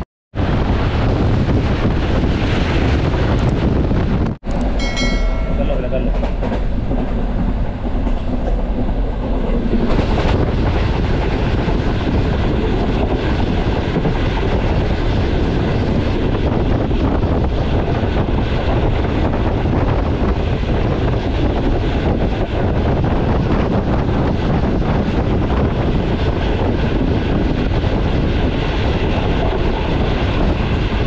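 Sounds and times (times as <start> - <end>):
train wheels rumbling on rail: 0.4 - 31.0
rail joint clicks: 4.4 - 12.1.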